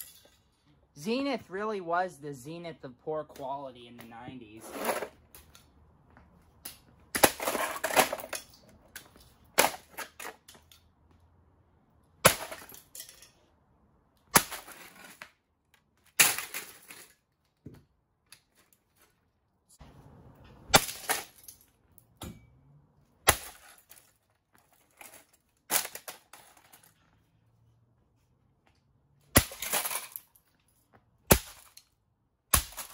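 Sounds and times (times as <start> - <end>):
rattle of breaking parts: 0.0 - 0.7, 7.2 - 10.9, 12.2 - 13.5, 16.1 - 17.3, 20.7 - 22.5, 23.3 - 27.0, 29.4 - 32.0.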